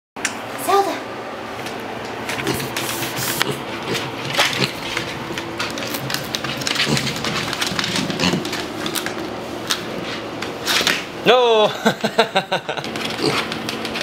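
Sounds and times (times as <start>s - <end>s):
hooves clicking on hardwood floor: 3.4s - 9.3s.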